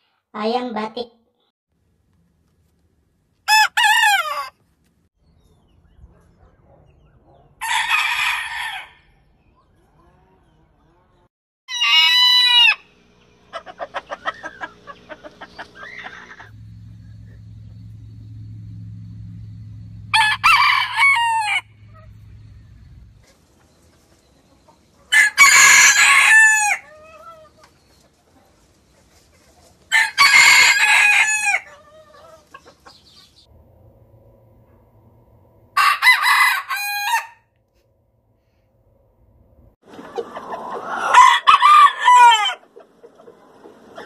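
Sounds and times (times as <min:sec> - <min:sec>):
roosters crowing: 0:03.5 - 0:04.6, 0:07.6 - 0:09.4, 0:11.7 - 0:23.3, 0:25.0 - 0:27.8, 0:29.9 - 0:33.2, 0:35.7 - 0:37.5, 0:39.9 - 0:44.0
quick clucks: 0:13.5 - 0:16.5.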